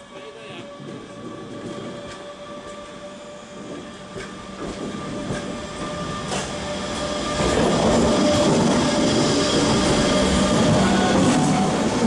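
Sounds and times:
electric train whine: 0:00.0 - 0:12.0
train wheels rumbling: 0:00.0 - 0:12.0.

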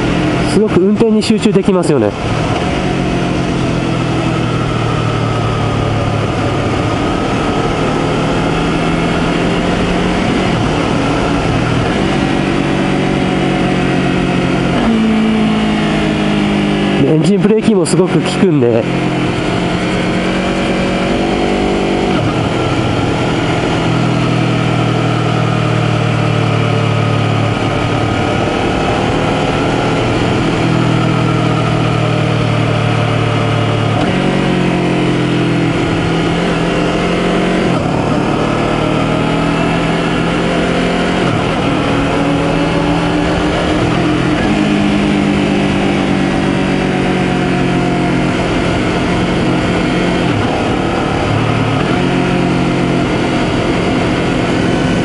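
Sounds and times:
motorcycle engine revving: 0:00.0 - 0:55.0
wind rush: 0:02.1 - 0:13.3.

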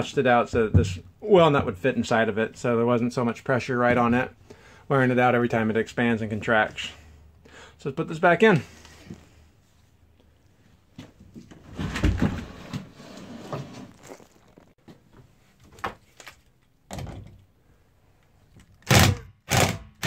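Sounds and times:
plastic tank scraping on wood: 0:11.8 - 0:14.1.

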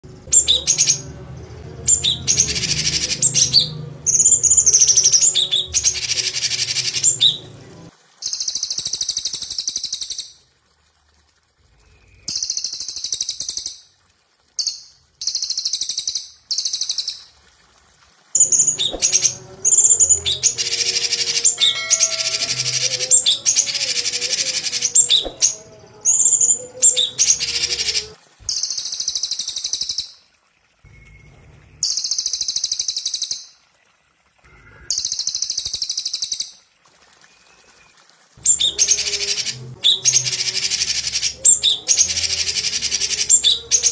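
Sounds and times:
songbirds chattering trills: 0:18.4 - 0:28.2.

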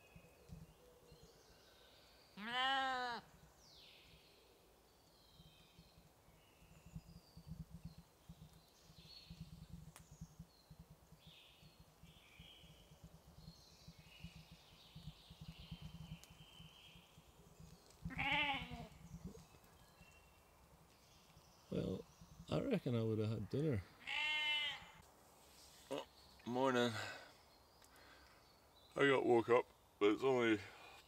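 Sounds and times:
goat bleating: 0:18.1 - 0:18.9, 0:24.0 - 0:25.0.

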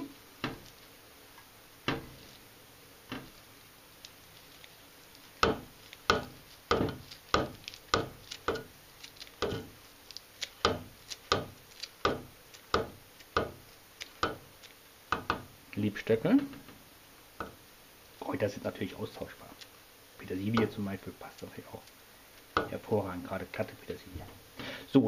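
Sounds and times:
scissors snipping leaves: 0:04.0 - 0:14.8, 0:20.3 - 0:22.0.

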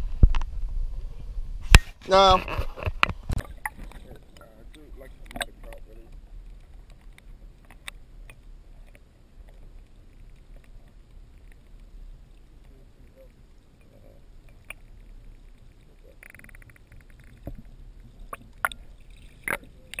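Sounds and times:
muffled underwater rumble: 0:00.0 - 0:20.0.

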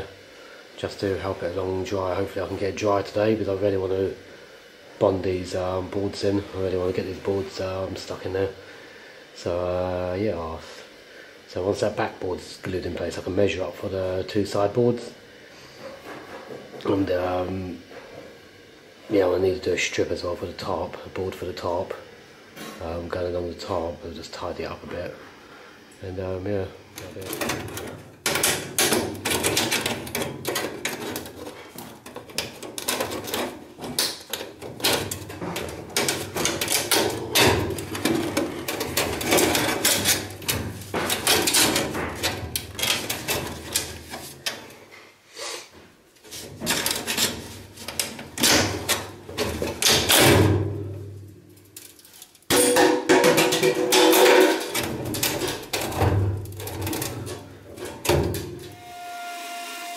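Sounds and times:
aluminium duct crinkling: 0:26.2 - 0:45.0, 0:46.1 - 0:58.8.

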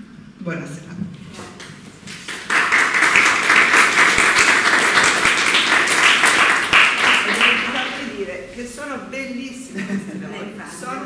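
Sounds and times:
audience applauding: 0:02.2 - 0:08.0.

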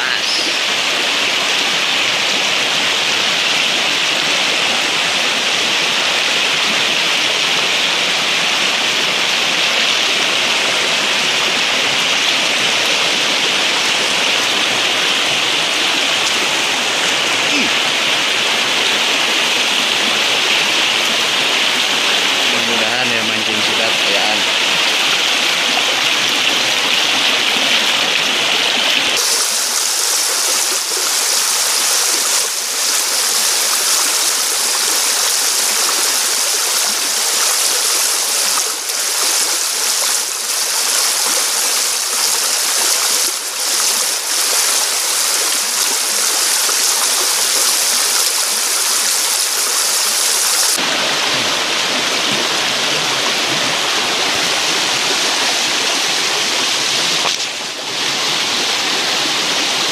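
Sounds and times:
river water rushing over rocks: 0:24.4 - 0:57.2.

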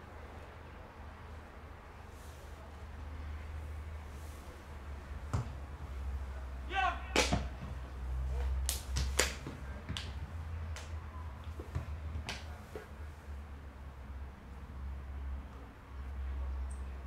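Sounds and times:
shout-like call: 0:06.7 - 0:07.4
sharp knocks: 0:07.1 - 0:07.8.

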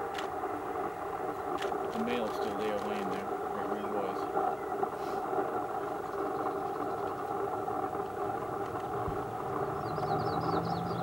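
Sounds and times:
vehicle engine droning: 0:00.7 - 0:11.0.

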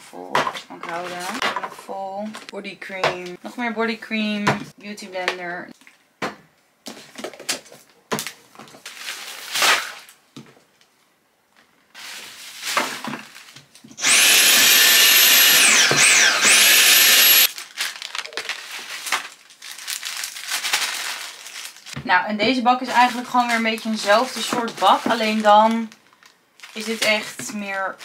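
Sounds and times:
vacuum cleaner running: 0:14.0 - 0:17.5.

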